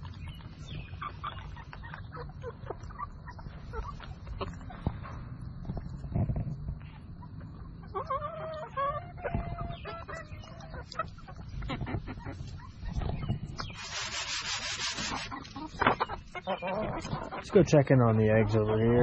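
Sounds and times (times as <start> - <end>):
young chickens clucking: 0.0 - 19.0
hissing rustle: 12.5 - 16.0.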